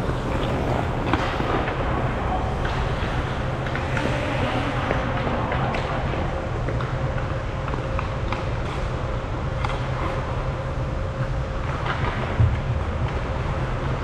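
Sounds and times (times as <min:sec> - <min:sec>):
hockey sticks and puck clacking: 0:00.0 - 0:09.0
faint steady hum: 0:00.0 - 0:14.0.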